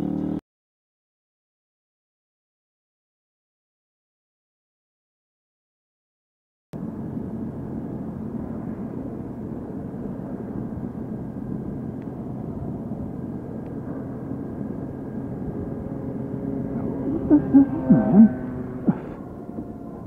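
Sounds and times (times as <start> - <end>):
motorcycle engine hum: 0.0 - 0.4, 6.8 - 20.0
road noise: 0.0 - 0.4, 6.8 - 20.0.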